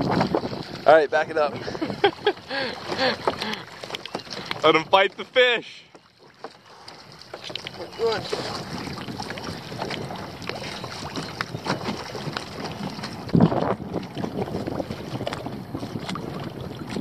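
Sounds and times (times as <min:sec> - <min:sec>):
wind buffeting microphone: 0:00.0 - 0:03.6, 0:07.6 - 0:17.0
water noise: 0:00.0 - 0:17.0.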